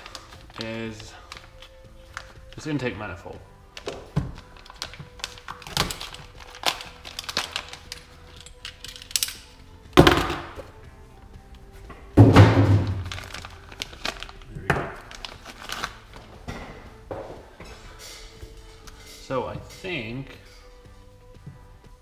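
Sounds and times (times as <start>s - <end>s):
plastic bag crinkling: 0.0s - 2.8s, 3.8s - 9.1s, 12.8s - 16.0s.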